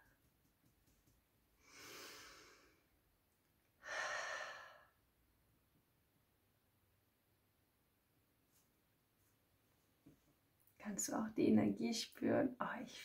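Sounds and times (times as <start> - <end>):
woman breathing: 1.6 - 3.0, 3.8 - 5.0.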